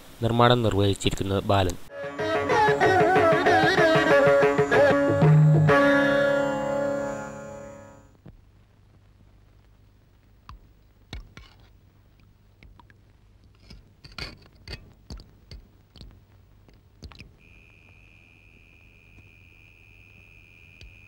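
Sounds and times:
steady high tone: 0:01.9 - 0:08.2, 0:17.4 - 0:21.0.

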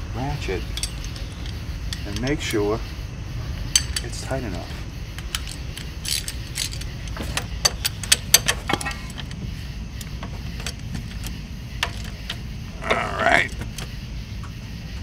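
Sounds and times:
steady low rumble: 0:00.0 - 0:15.0
ratchet clicking: 0:05.2 - 0:12.6.

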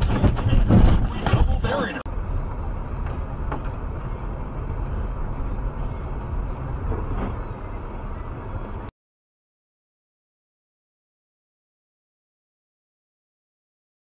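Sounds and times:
car road and engine rumble: 0:00.0 - 0:08.9.

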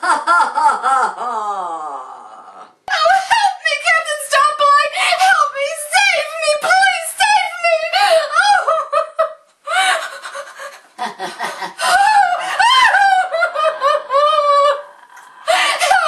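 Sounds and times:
woman cackling: 0:08.0 - 0:16.0.

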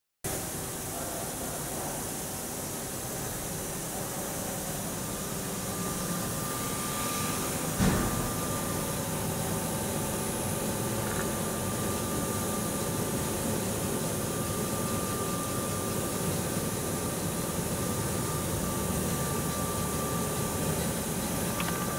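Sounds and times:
machine hum with whine: 0:00.3 - 0:21.9
thump: 0:07.8 - 0:08.4.

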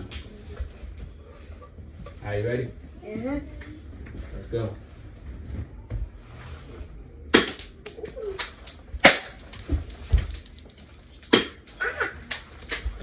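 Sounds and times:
bb gun shots: 0:07.3 - 0:07.7, 0:09.0 - 0:09.4, 0:11.3 - 0:11.7.

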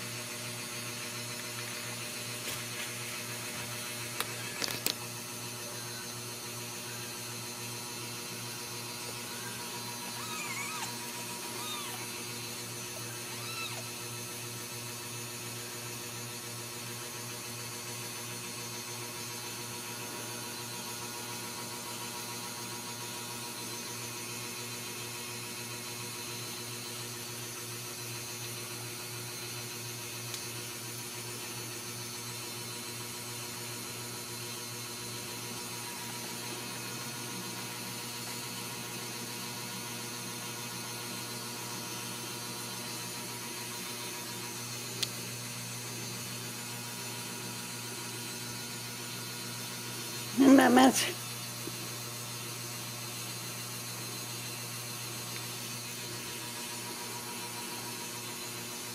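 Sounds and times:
steady hum: 0:00.0 - 0:17.8.

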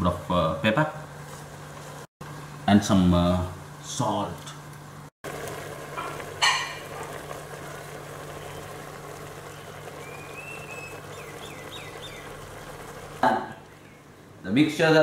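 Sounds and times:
food sizzling in a pot: 0:05.2 - 0:13.7
faint bird chirps: 0:09.5 - 0:12.4.

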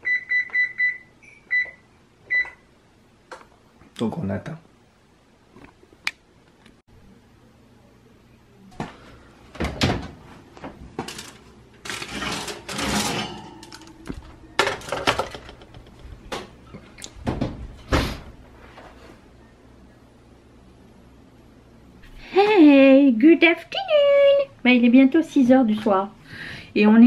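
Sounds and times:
metal pan clattering: 0:11.0 - 0:15.8.

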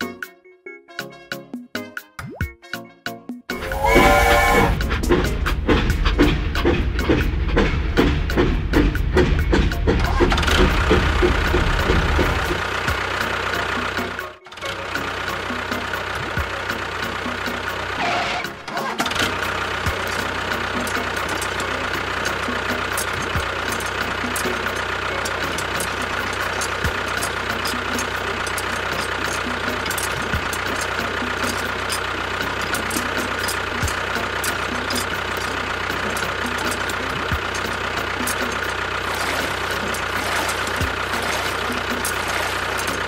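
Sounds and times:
tractor engine running: 0:03.5 - 0:43.0
fast irregular ticking: 0:19.0 - 0:43.0.

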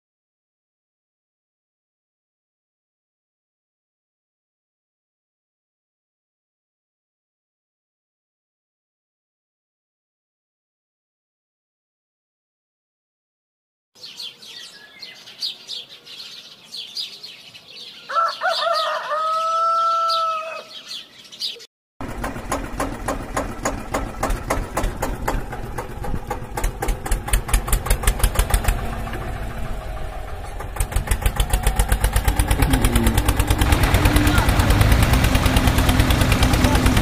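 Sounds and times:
birds chirping: 0:14.0 - 0:21.7, 0:29.8 - 0:36.8
rooster crowing: 0:18.0 - 0:21.0
tractor engine chugging: 0:22.0 - 0:37.0.

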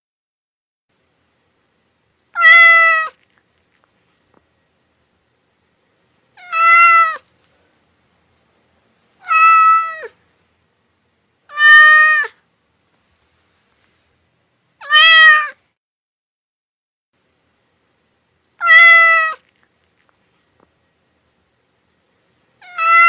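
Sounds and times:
cat meowing: 0:02.3 - 0:03.2, 0:06.4 - 0:07.3, 0:09.2 - 0:10.2, 0:11.5 - 0:12.4, 0:14.8 - 0:15.6, 0:18.6 - 0:19.5, 0:22.6 - 0:23.0.

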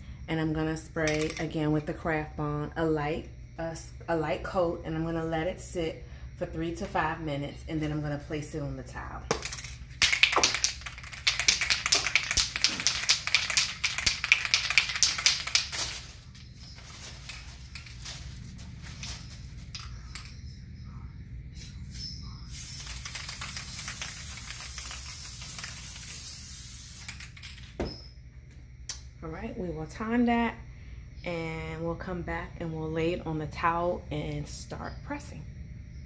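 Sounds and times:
aerosol spray hissing: 0:21.6 - 0:27.2.

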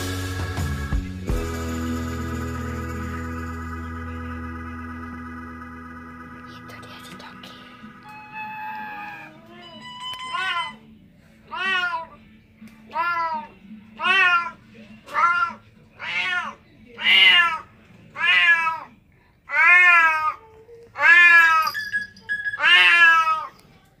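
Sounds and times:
cat meowing loudly: 0:08.1 - 0:10.9, 0:11.5 - 0:12.2, 0:12.9 - 0:20.4, 0:21.0 - 0:21.7, 0:22.6 - 0:23.6.

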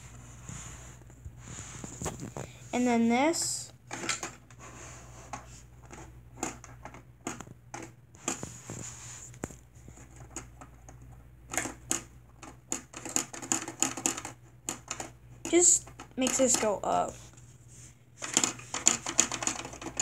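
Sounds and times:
plastic bricks clicking and rattling: 0:11.5 - 0:15.1, 0:18.2 - 0:20.0.

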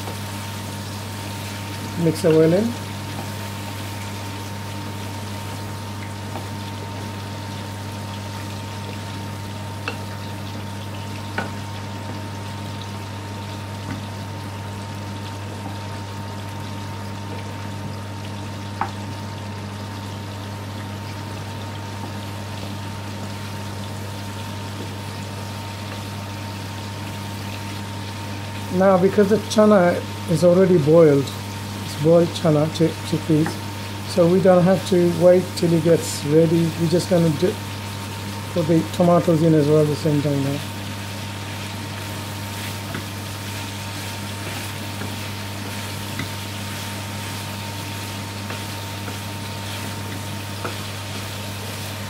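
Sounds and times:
food sizzling in a pan: 0:00.0 - 0:52.0
wooden spoon stirring: 0:40.6 - 0:52.0.

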